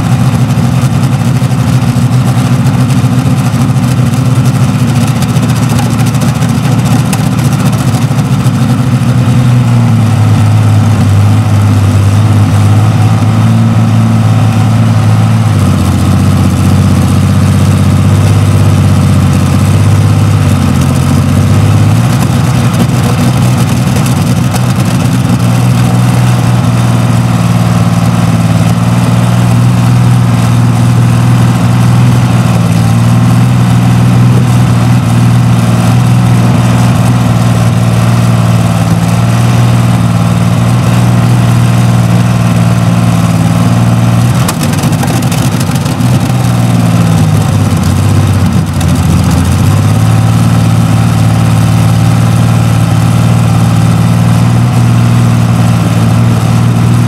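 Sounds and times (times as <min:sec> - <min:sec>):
tank engine running: 0:00.0 - 0:57.0.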